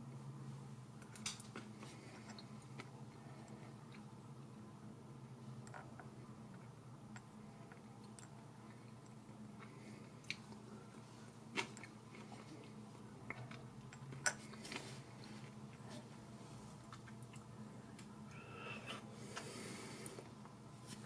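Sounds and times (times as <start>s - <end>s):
soft chewing: 1.0s - 4.2s, 5.6s - 21.0s.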